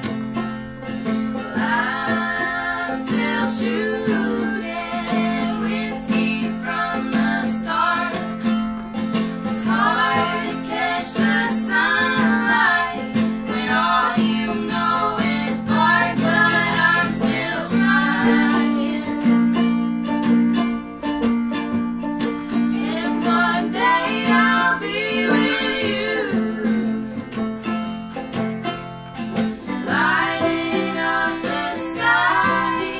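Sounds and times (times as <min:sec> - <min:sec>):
acoustic guitar: 0:00.0 - 0:32.9
banjo: 0:00.0 - 0:32.9
mandolin: 0:00.0 - 0:32.9
women singing in harmony: 0:01.4 - 0:08.8, 0:09.4 - 0:19.6, 0:22.6 - 0:27.4, 0:29.6 - 0:32.9.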